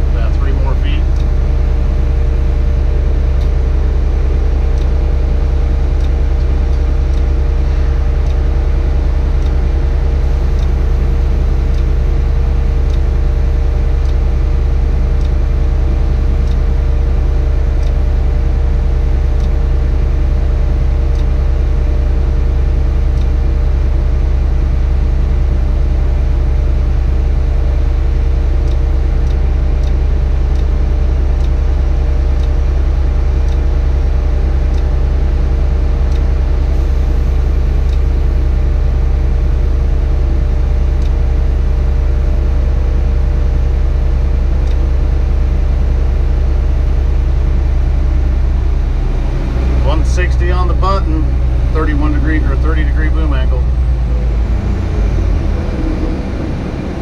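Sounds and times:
crane engine drone: 0.0 - 57.0
steady hum: 0.0 - 57.0.

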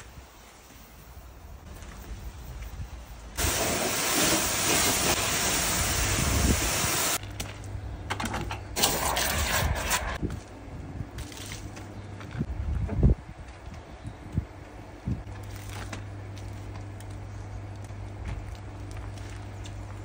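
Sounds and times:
pressure washer jet hissing: 3.4 - 7.2.

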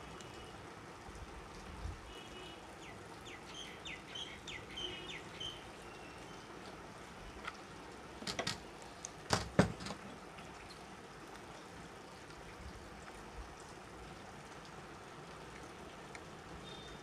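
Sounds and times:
small birds chirping: 2.8 - 6.6.

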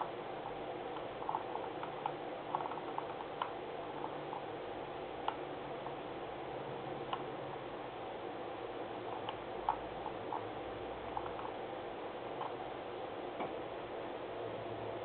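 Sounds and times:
steady low hum: 0.0 - 15.0
mouse scroll wheel ticks: 0.9 - 4.5, 11.1 - 11.6.

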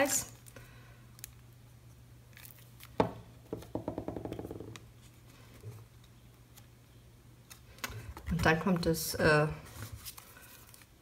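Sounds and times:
paper rubbing and rustling: 9.6 - 10.9.

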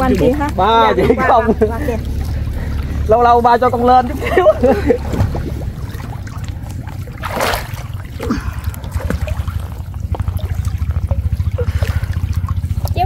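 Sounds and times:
steady low rumble: 0.0 - 13.0
water sloshing and trickling: 0.0 - 13.0
loud water splash: 3.8 - 12.8.

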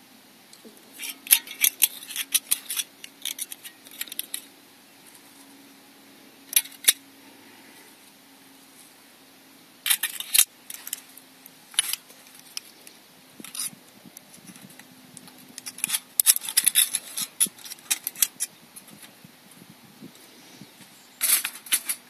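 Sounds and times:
camp stove parts clicking and rattling: 0.5 - 5.5, 6.5 - 7.1, 9.8 - 19.2, 21.1 - 22.0.

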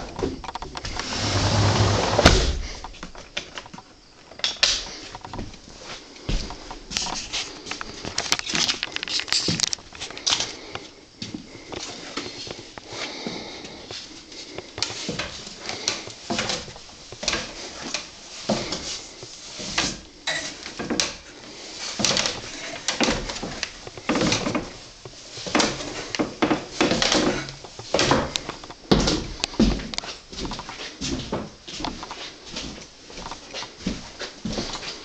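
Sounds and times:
footsteps on wooden stairs: 5.1 - 8.2, 9.4 - 19.0, 21.9 - 35.0
dog's paws on wooden stairs: 21.9 - 35.0.

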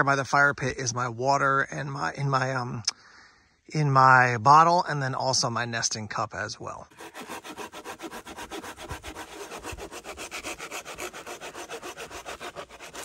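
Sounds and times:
folding saw cutting log: 6.9 - 13.0.

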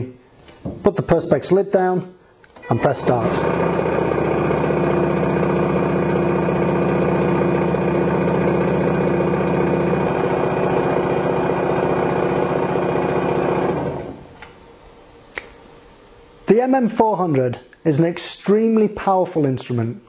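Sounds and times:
mixer mill buzzing drone: 2.8 - 14.4.

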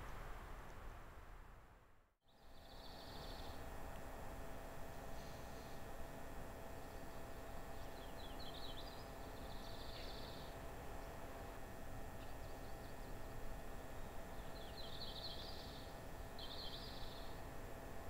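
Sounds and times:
faint outdoor hiss: 0.0 - 18.0
songbird singing with buzzy trill: 2.3 - 3.7, 6.8 - 11.3, 12.1 - 17.5.

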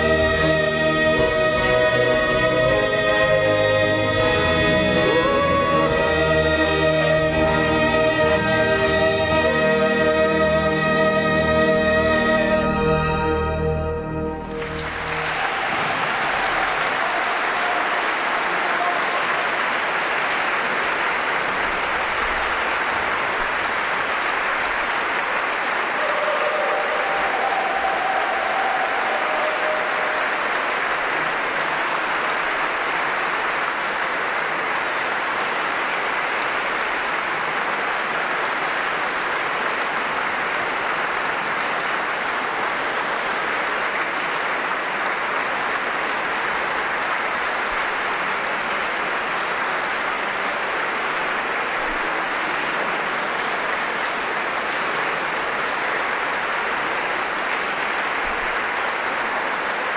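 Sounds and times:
audience applauding: 0.0 - 59.9.

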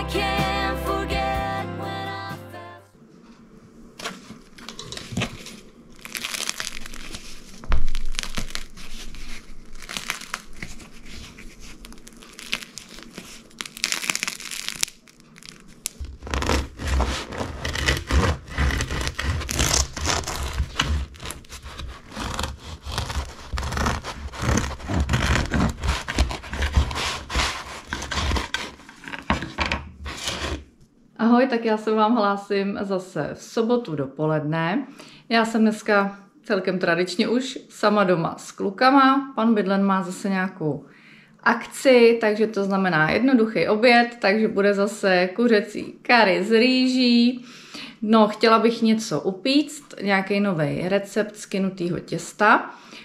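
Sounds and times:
bread crust crackling: 4.0 - 29.5
bread knife sawing crust: 16.1 - 29.1, 30.1 - 30.6.

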